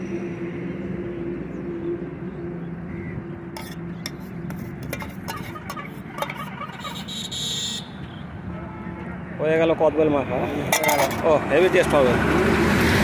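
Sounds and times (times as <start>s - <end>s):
metal spoon scraping steel tumbler: 3.6s - 7.1s, 10.7s - 11.3s.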